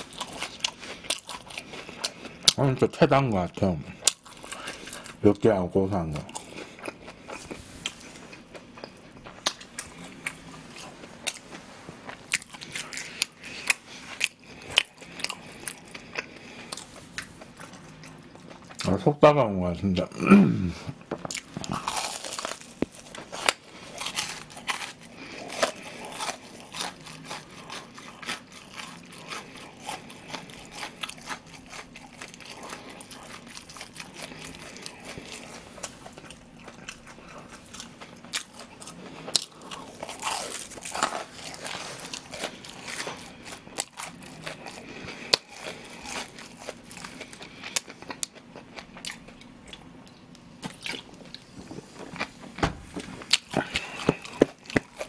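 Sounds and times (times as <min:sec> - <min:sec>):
crunching fried crust: 0:00.0 - 0:19.2, 0:20.9 - 0:52.4, 0:53.1 - 0:55.0
wet chewing: 0:20.9 - 0:52.3, 0:53.0 - 0:55.0.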